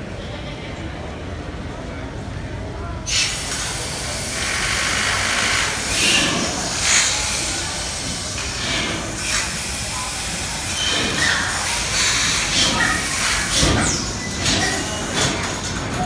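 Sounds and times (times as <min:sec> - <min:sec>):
gas compressor engine hissing: 0:03.1 - 0:14.3.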